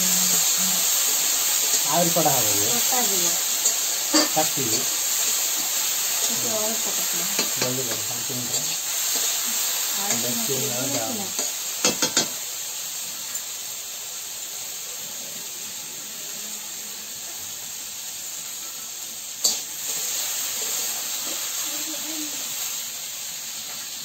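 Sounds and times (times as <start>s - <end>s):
food sizzling in a wok: 0.0s - 24.0s
metal clink on a pan: 3.6s - 4.9s, 7.4s - 8.8s, 10.9s - 12.4s.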